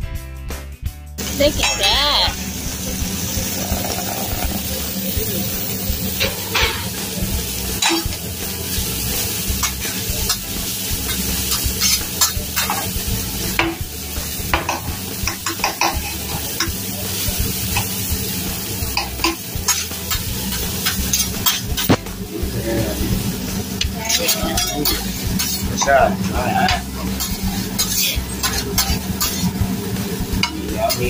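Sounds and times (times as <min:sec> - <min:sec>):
food sizzling on a grill: 0:01.2 - 0:31.0
metal spatula scraping griddle: 0:06.2 - 0:07.0, 0:11.1 - 0:12.9, 0:19.0 - 0:22.0, 0:23.9 - 0:29.6.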